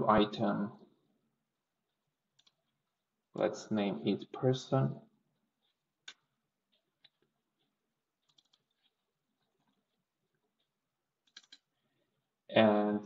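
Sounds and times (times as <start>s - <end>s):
keyboard and mouse clicks: 2.4s - 2.8s, 5.6s - 11.7s.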